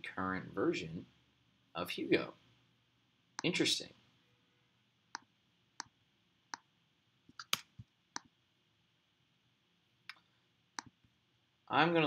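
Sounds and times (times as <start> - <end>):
computer mouse clicking: 7.3 - 8.3.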